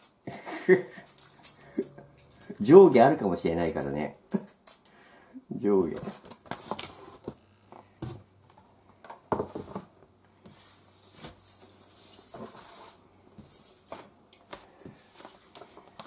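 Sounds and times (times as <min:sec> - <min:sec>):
cardboard rustling and scraping: 0:05.8 - 0:08.6, 0:09.3 - 0:14.2.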